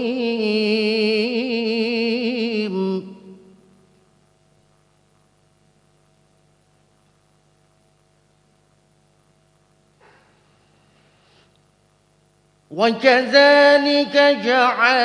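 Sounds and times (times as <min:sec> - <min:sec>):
faint electrical hum: 0:00.0 - 0:15.0
breath into microphone: 0:10.0 - 0:11.6.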